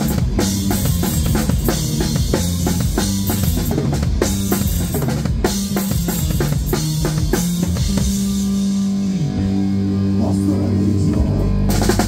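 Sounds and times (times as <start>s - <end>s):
drum kit playing hard: 0.0s - 12.0s
guitars and bass ringing chord: 0.0s - 12.0s.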